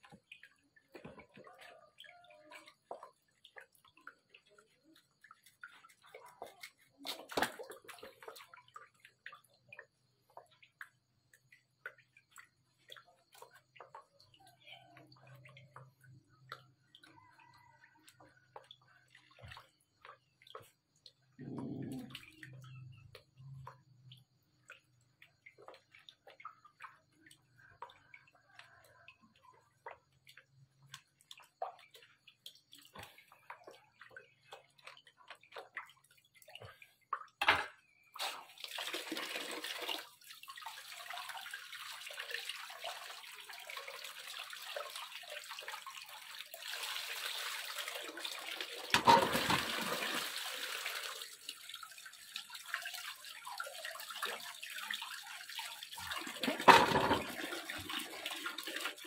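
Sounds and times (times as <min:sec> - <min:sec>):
water pouring into basin: 0:00.0 - 0:59.0
hands splashing in water basin: 0:00.1 - 0:09.8.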